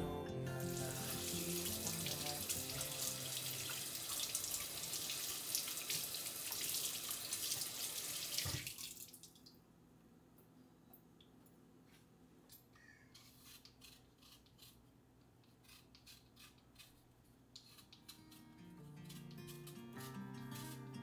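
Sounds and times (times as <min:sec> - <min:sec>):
faucet water splashing into sink: 0:01.3 - 0:09.6.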